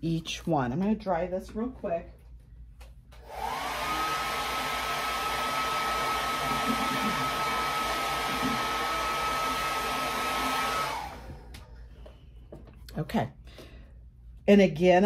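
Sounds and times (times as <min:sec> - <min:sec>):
electric dryer blowing air: 0:03.2 - 0:11.8.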